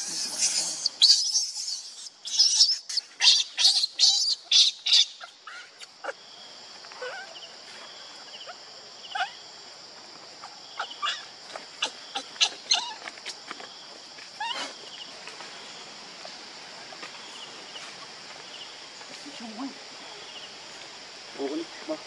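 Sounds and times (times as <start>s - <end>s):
infant monkey squealing: 0.0s - 5.8s, 9.1s - 9.4s, 10.8s - 13.1s, 14.4s - 14.8s.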